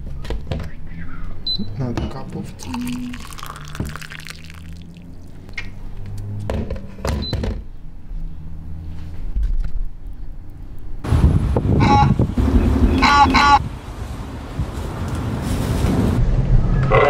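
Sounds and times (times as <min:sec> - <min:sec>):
water pouring into a mug: 0:02.6 - 0:05.5.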